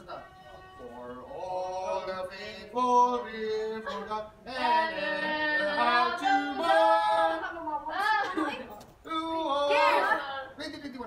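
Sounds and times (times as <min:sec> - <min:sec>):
people singing unaccompanied: 0:00.0 - 0:08.5.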